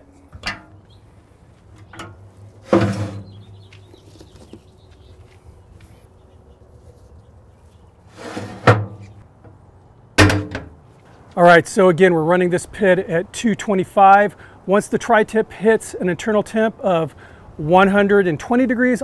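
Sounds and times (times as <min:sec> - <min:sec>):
metal smoker clanking: 0:00.0 - 0:01.0, 0:01.7 - 0:03.7, 0:10.2 - 0:10.8.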